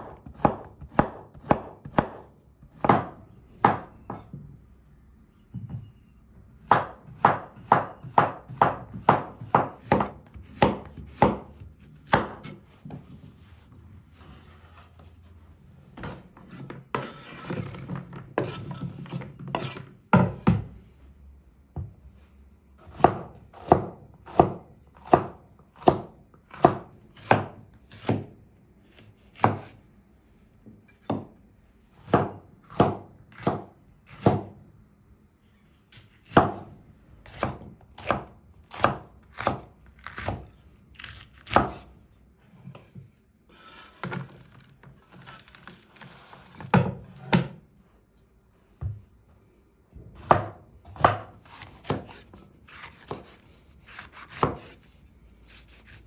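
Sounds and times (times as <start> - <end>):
knife chopping on wooden board: 0.0 - 4.3, 6.7 - 12.6, 22.8 - 28.3, 28.9 - 29.8, 31.0 - 31.3, 32.0 - 34.5, 36.2 - 36.7, 37.3 - 41.9, 50.2 - 54.9, 55.5 - 56.0.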